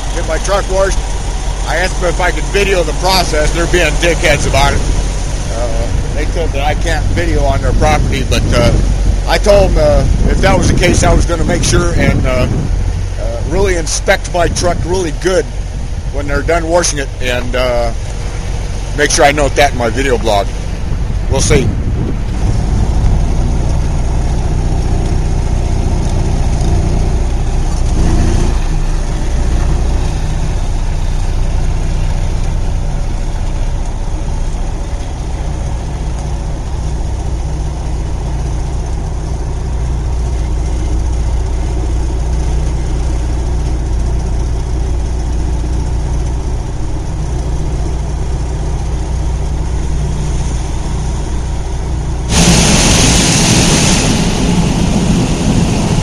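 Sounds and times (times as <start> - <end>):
diesel truck engine running: 0.0 - 56.0
loud air hiss: 50.3 - 56.0.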